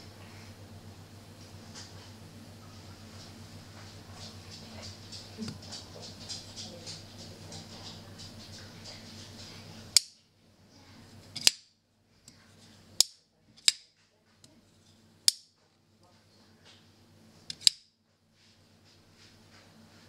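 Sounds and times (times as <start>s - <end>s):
folding knife blade clicking: 17.5s - 17.8s.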